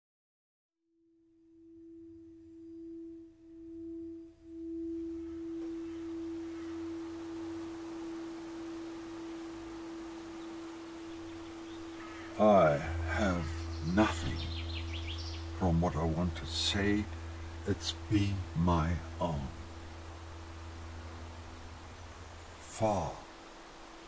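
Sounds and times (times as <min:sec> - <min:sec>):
low hum: 0:01.2 - 0:24.0
steady drone tone: 0:01.2 - 0:24.0
soft hiss: 0:01.9 - 0:24.0.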